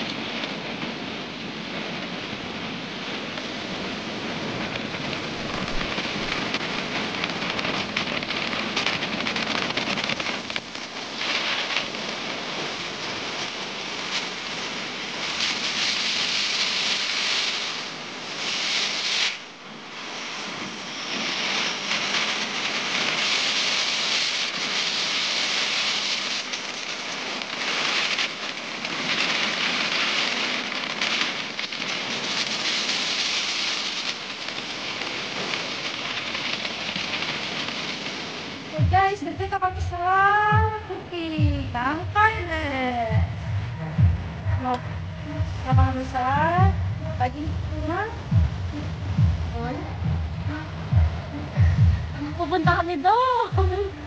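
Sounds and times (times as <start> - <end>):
wind buffeting microphone: 3.4 - 13.2, 37.2 - 54.0.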